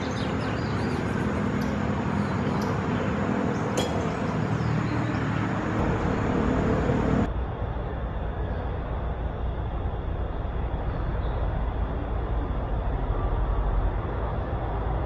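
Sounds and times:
high bird chirps: 0.0s - 5.4s
low even hum: 0.0s - 15.0s.

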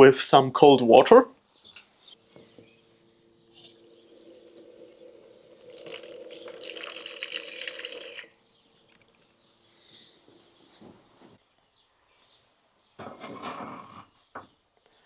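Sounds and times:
water splashing into a plastic tub: 5.6s - 8.4s.

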